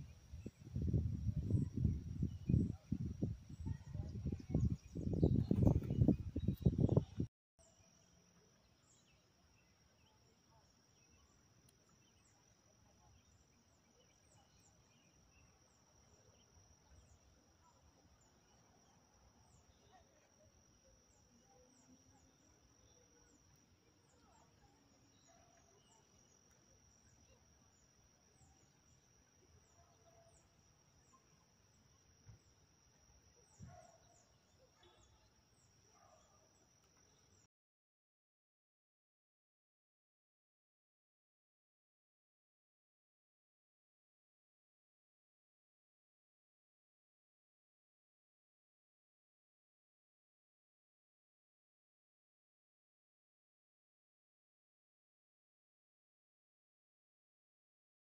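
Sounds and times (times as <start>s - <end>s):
insect trill: 0.0s - 37.5s.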